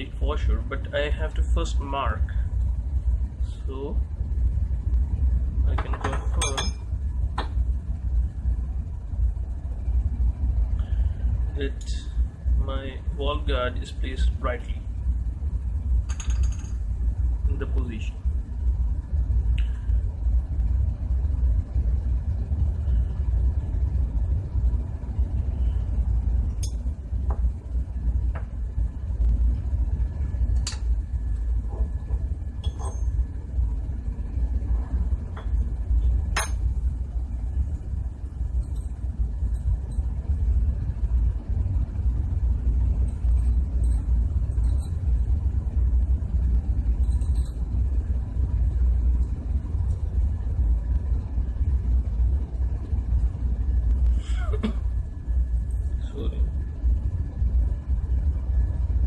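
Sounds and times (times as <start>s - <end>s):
steady low rumble: 0.0s - 59.0s
light metallic clinks: 43.0s - 45.1s, 46.9s - 47.8s.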